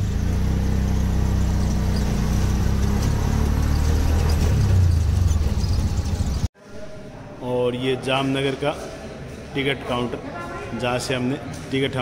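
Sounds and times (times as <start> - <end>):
road noise: 0.0 - 6.5
small engine droning: 0.0 - 6.5.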